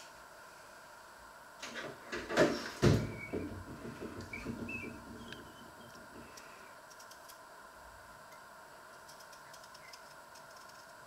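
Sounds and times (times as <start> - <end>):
kitchen knocks and clatter: 1.7 - 5.3
small clicks and rustles: 5.2 - 7.4, 8.3 - 11.0.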